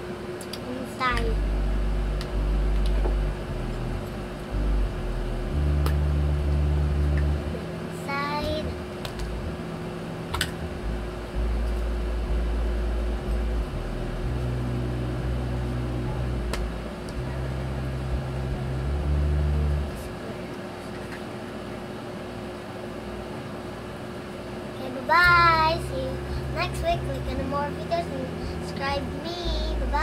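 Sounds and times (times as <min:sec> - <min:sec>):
low room hum and rumble: 0:00.0 - 0:30.0.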